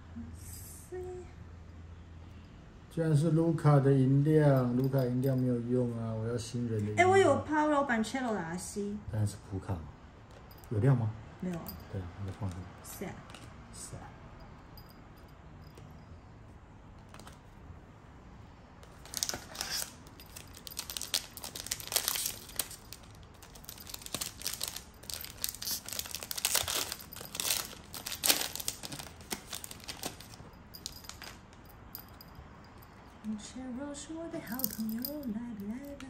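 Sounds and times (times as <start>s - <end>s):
cards being handled: 17.0s - 17.6s, 18.8s - 31.6s
foil wrappers crinkling and tearing: 18.8s - 31.4s.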